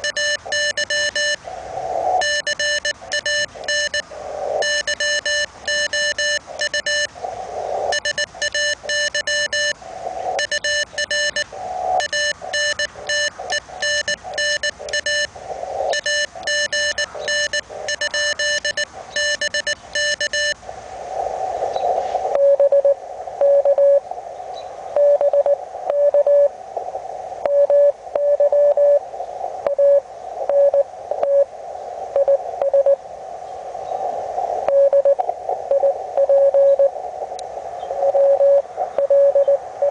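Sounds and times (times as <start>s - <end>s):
buzzy morse code beeps: 0.0s - 1.4s, 2.2s - 7.1s, 7.9s - 20.6s, 22.3s - 24.0s, 25.0s - 26.5s, 27.5s - 29.0s, 29.7s - 31.5s, 32.2s - 33.0s, 34.7s - 37.0s, 38.0s - 39.9s
pure keyed morse tone: 0.0s - 7.2s, 7.8s - 20.6s, 22.3s - 24.1s, 34.6s - 39.9s
radio receiver hiss: 0.0s - 39.9s.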